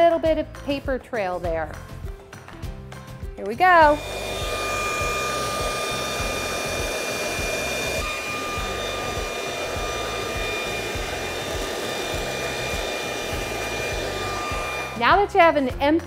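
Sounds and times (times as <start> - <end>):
leaf blower whining: 3.8 - 15.3.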